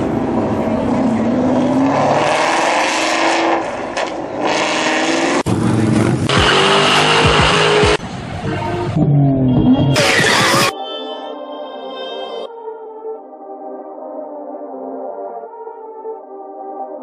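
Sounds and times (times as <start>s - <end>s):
car engines revving: 0.0s - 10.7s.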